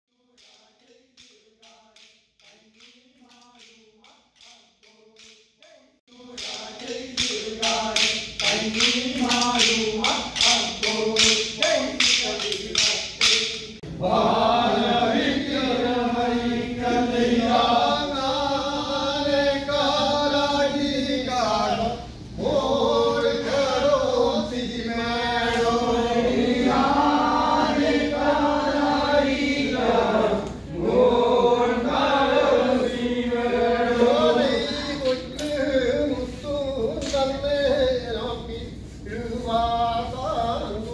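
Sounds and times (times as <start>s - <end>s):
men chanting together: 6.1s - 37.4s.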